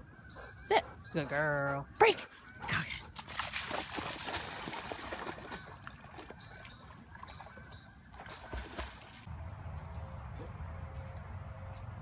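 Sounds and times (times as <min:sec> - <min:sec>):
water splashing: 0:03.0 - 0:10.4.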